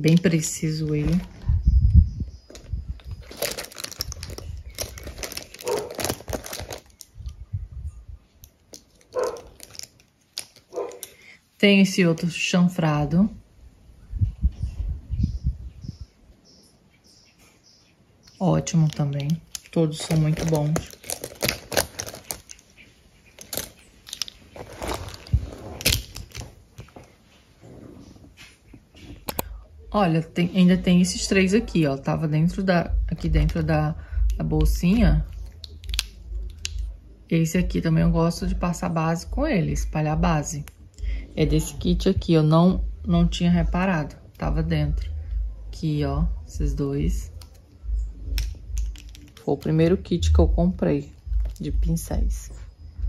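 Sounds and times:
makeup brushes clicking and rattling: 3.2s - 7.1s, 8.4s - 11.2s, 18.7s - 22.7s, 23.3s - 26.5s, 48.3s - 49.7s
brush handles clicking and rattling: 8.4s - 11.2s.

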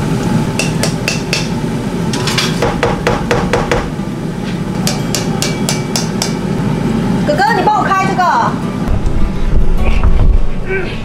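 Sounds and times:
steady low noise: 8.8s - 11.0s.

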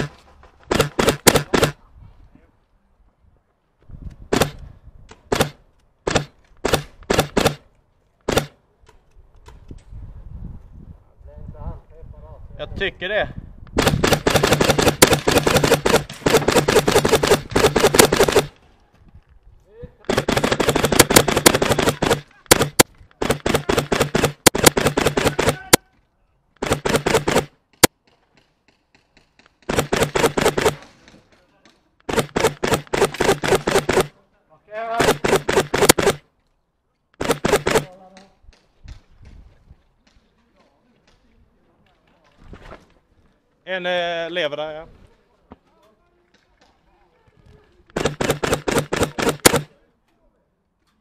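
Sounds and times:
airsoft gun shots: 0.7s - 1.8s, 4.3s - 4.6s, 5.3s - 7.6s, 8.3s - 8.6s, 13.8s - 18.5s, 20.1s - 25.9s, 26.6s - 27.9s, 29.6s - 30.9s, 32.1s - 34.1s, 34.9s - 36.2s, 37.2s - 38.0s, 47.9s - 49.7s
faint distant shots: 20.1s - 25.9s, 47.9s - 49.8s.

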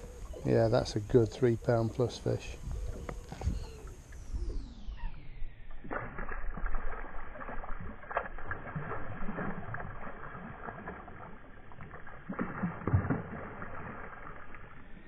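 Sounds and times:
water lapping: 0.0s - 4.8s, 5.8s - 15.0s
fish splashing and thrashing: 5.7s - 15.0s.

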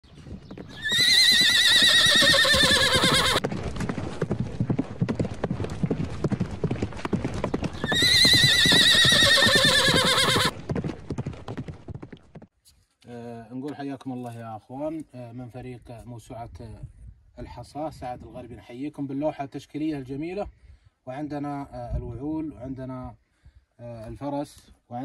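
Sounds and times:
galloping hoofbeats: 0.1s - 12.5s
horse whinnying: 0.7s - 3.4s, 7.8s - 10.5s.

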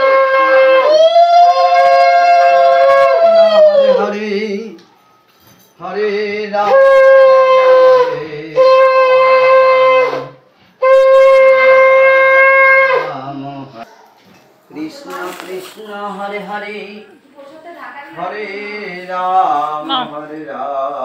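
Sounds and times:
conch shell blasts: 10.8s - 13.1s.

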